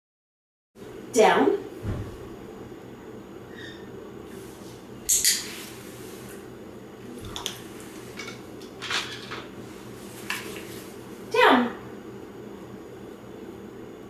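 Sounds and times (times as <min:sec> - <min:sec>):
low room hum: 0:00.8 - 0:14.0.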